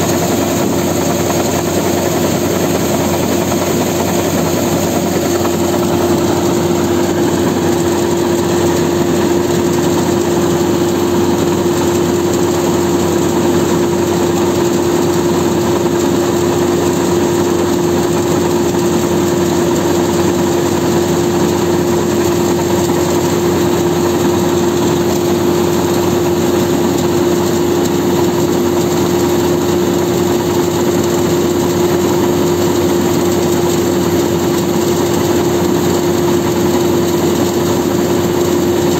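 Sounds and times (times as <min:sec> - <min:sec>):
falling grain rushing: 0:00.0 - 0:14.7
combine harvester engine hum: 0:00.0 - 0:38.9.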